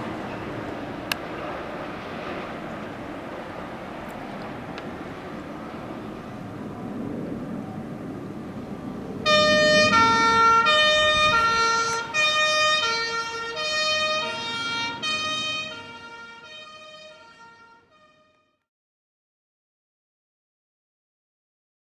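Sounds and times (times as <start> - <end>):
vehicle running and traffic: 0.0 - 18.6
two-tone siren: 9.2 - 18.7.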